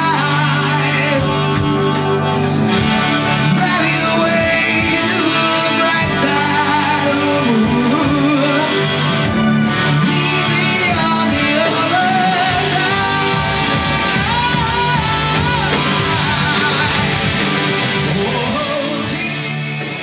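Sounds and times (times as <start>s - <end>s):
live rock band playing: 0.0s - 20.0s
wavering lead guitar line: 0.0s - 20.0s.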